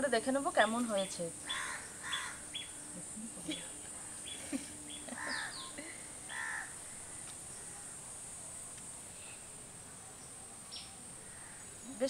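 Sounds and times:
high-pitched background whine: 0:00.0 - 0:12.0
crow cawing: 0:01.4 - 0:02.8, 0:04.0 - 0:08.0, 0:11.2 - 0:11.7.

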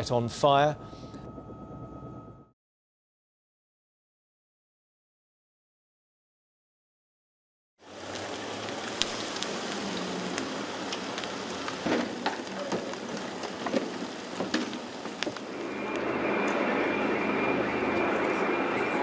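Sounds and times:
hiss of flames: 0:07.8 - 0:16.8
street noise: 0:07.8 - 0:19.0
sharp cracks and pops: 0:08.1 - 0:16.6.

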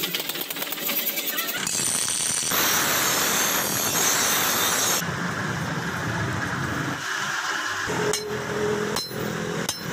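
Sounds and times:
blade grinding hiss: 0:01.6 - 0:05.0
grinder motor running: 0:01.6 - 0:05.0.

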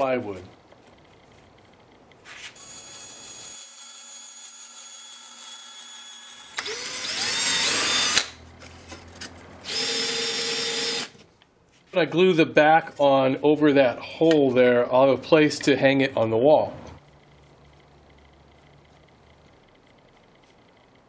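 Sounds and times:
power tool whining: 0:02.6 - 0:08.4, 0:09.6 - 0:11.2.

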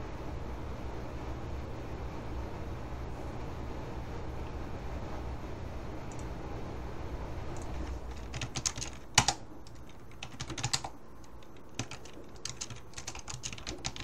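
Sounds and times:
keyboard typing: 0:07.6 - 0:14.0.

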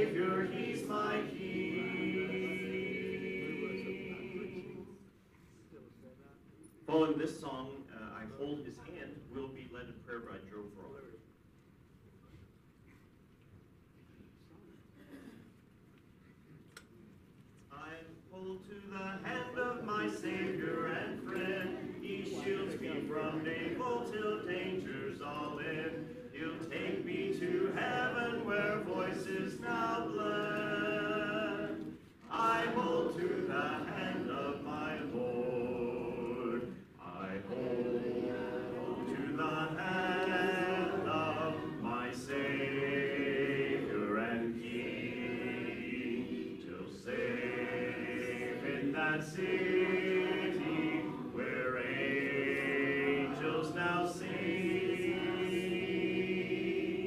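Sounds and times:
congregation singing a hymn: 0:00.0 - 0:05.1, 0:17.8 - 0:57.0.

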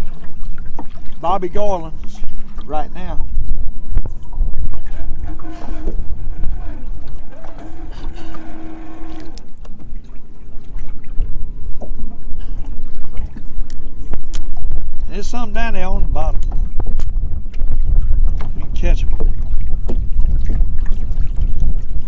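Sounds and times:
strong wind buffeting microphone: 0:00.0 - 0:22.0
faint drawn-out tones: 0:03.1 - 0:09.6.

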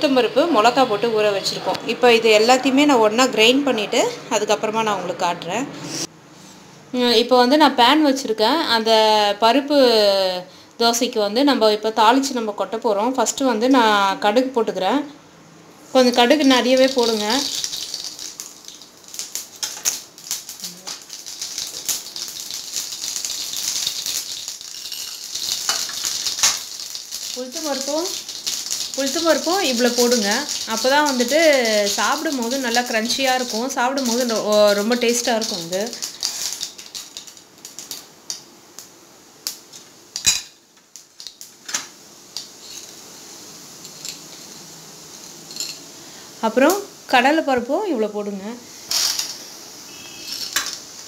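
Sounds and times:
oil sizzling: 0:15.8 - 0:51.0
seeds popping in hot oil: 0:16.0 - 0:43.1, 0:48.9 - 0:51.0
spoon clinking on metal: 0:24.7 - 0:26.6.

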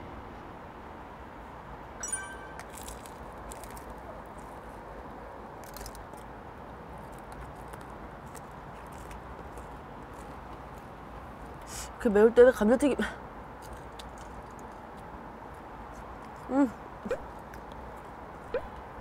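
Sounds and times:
chewing fried chicken: 0:07.0 - 0:11.0.

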